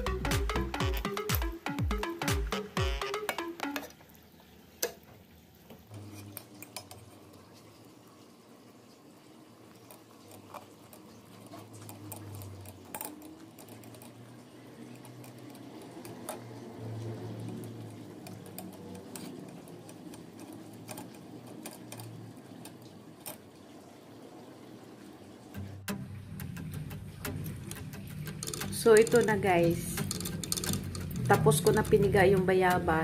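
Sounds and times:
spoon mashing fruit in strainer: 0:09.6 - 0:23.6, 0:27.4 - 0:32.9
spoon clicking on metal mesh: 0:11.4 - 0:16.5, 0:17.4 - 0:23.4, 0:27.4 - 0:32.1.

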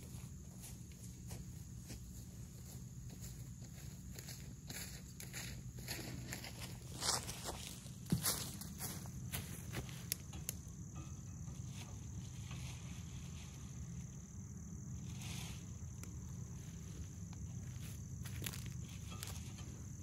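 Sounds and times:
crickets chirping: 0:00.0 - 0:20.0
rustles in dry leaves: 0:11.5 - 0:20.0.

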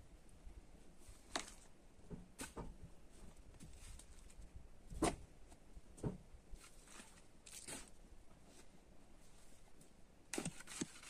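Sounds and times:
shovel scraping into soil: 0:06.6 - 0:08.0, 0:10.3 - 0:11.0.

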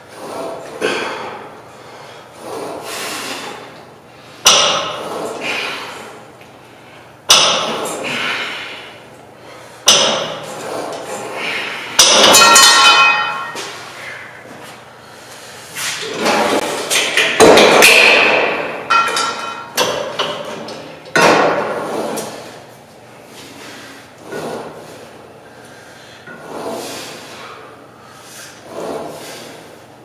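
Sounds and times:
weight-stack plates clanking: 0:09.9 - 0:14.2, 0:16.0 - 0:22.5.

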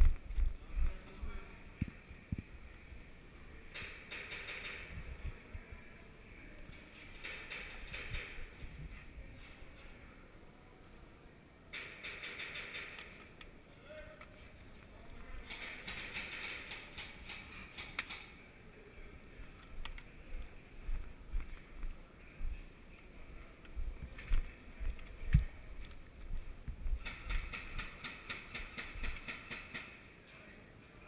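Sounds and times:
rapid evenly spaced clicks: 0:03.7 - 0:05.0, 0:07.0 - 0:08.6, 0:11.7 - 0:13.5, 0:15.4 - 0:18.3, 0:27.0 - 0:30.0.

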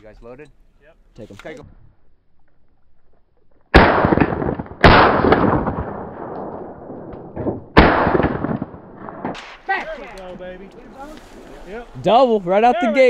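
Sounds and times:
shotgun blasts with echo: 0:03.7 - 0:09.7.

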